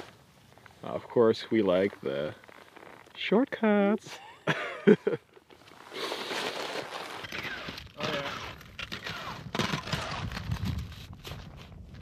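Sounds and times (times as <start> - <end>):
skis scraping over snow: 0.0 - 3.4, 5.6 - 8.3.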